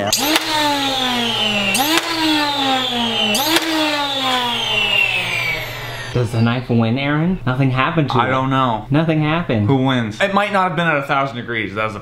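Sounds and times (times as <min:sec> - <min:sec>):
toy blaster flywheel whine: 0:00.0 - 0:06.8.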